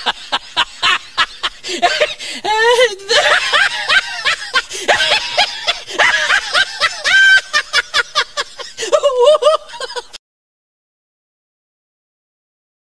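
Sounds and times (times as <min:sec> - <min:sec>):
person laughing: 0:00.0 - 0:10.2.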